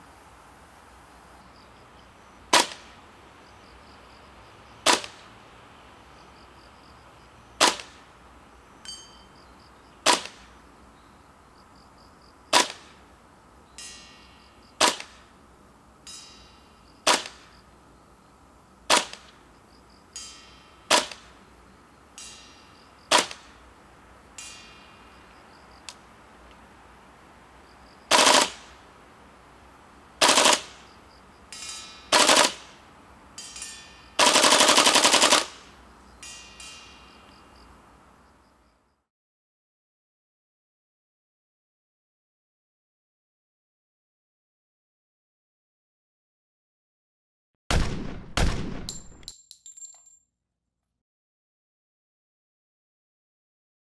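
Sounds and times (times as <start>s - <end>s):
airsoft rifle shots: 2.5s - 2.9s, 4.8s - 5.2s, 7.6s - 8.0s, 10.0s - 10.5s, 12.5s - 13.0s, 14.8s - 15.3s, 17.0s - 17.5s, 18.9s - 19.4s, 20.9s - 21.3s, 23.1s - 23.5s, 28.1s - 28.7s, 30.2s - 30.8s, 32.1s - 32.8s, 34.2s - 35.7s, 47.7s - 49.3s
faint metallic clinks: 8.8s - 9.4s, 33.4s - 34.2s, 36.2s - 37.7s, 48.9s - 50.3s
full-auto burst: 28.1s - 28.7s, 30.2s - 30.8s, 32.1s - 32.7s, 34.2s - 35.7s, 47.7s - 49.0s.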